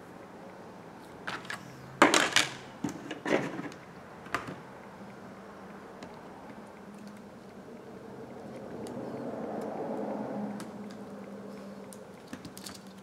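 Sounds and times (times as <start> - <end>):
faint background hum: 0.0 - 13.0
small parts clicking on work mat: 11.8 - 13.0.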